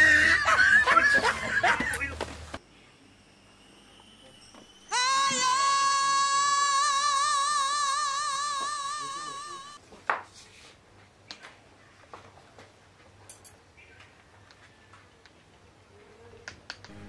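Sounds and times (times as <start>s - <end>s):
high voice singing long note: 4.9s - 9.8s.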